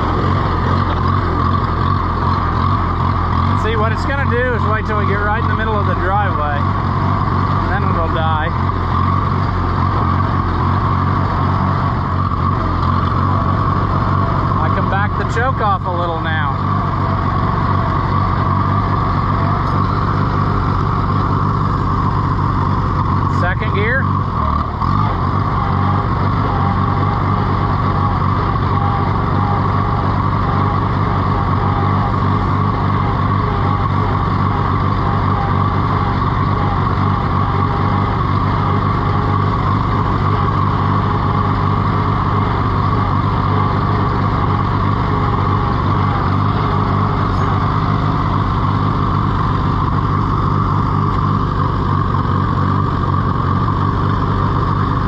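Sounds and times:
tractor engine running: 0:00.0 - 0:55.0
man talking: 0:03.6 - 0:06.7, 0:07.7 - 0:08.6, 0:14.6 - 0:16.6, 0:23.3 - 0:24.1.

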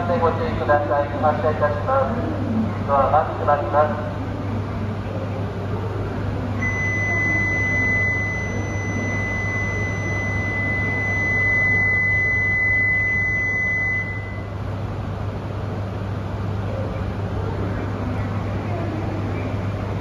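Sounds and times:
low train hum: 0:00.0 - 0:20.0
high electronic warning tone: 0:06.6 - 0:14.6.

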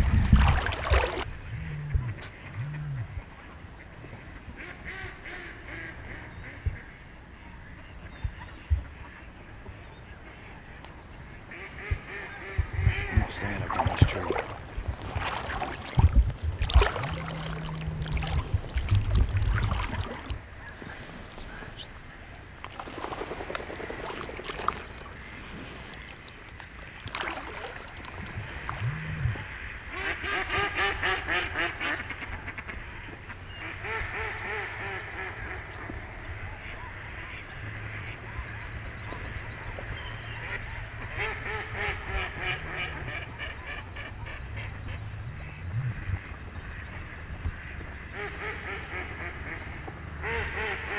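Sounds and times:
ducks quacking: 0:11.5 - 0:22.2, 0:40.4 - 0:50.9.

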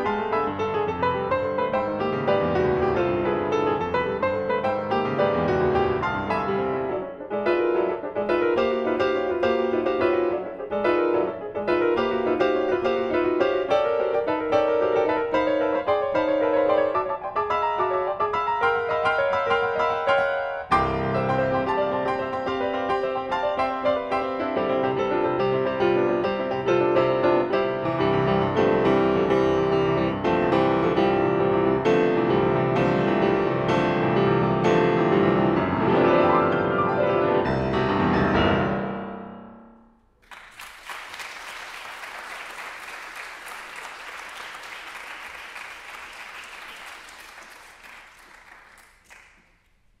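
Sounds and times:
grand piano playing classical chords: 0:00.0 - 0:40.2
audience applause: 0:40.2 - 0:49.6.

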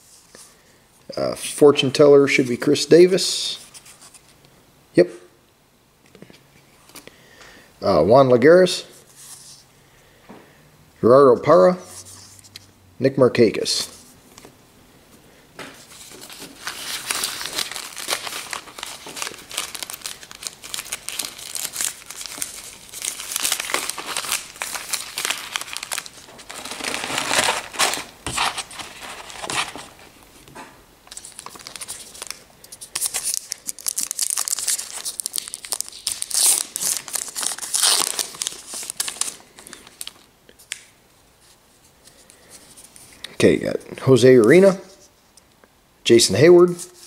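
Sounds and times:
wrapper crinkling and tearing: 0:15.8 - 0:30.0, 0:31.1 - 0:40.9.

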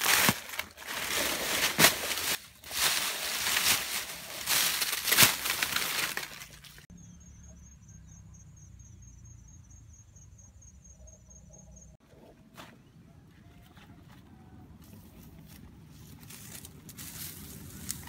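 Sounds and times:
dry leaves crunching underfoot: 0:00.0 - 0:06.9, 0:14.8 - 0:18.0.

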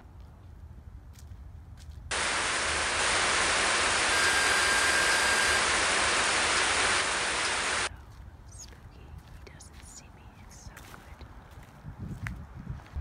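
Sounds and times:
tv static hiss: 0:02.1 - 0:07.9
steady high beep: 0:02.6 - 0:07.9.

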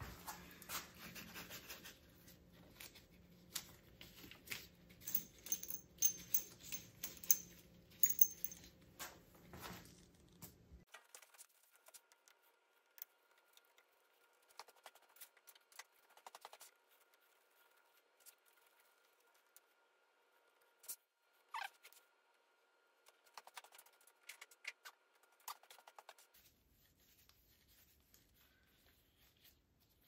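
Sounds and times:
small metal parts clicking: 0:05.0 - 0:08.7.

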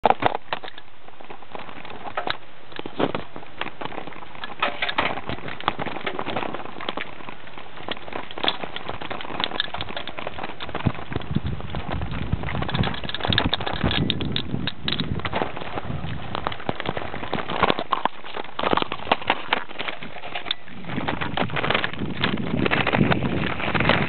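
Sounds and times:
bicycle basket rattling: 0:00.0 - 0:24.0.

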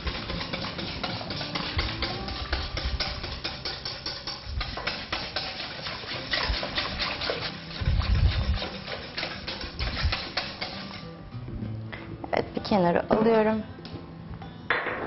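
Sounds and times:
whisk clicking in metal bowl: 0:00.0 - 0:11.0.

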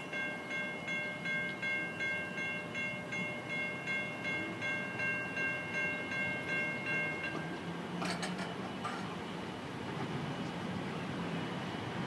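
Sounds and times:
crossing bell ringing: 0:00.0 - 0:09.4.

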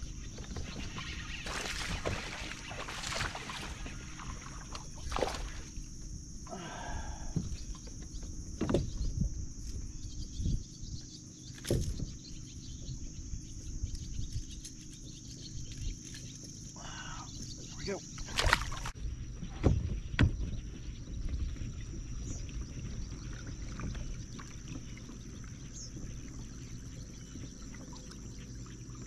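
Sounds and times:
water splashing and sloshing: 0:00.0 - 0:06.4, 0:17.5 - 0:29.0.

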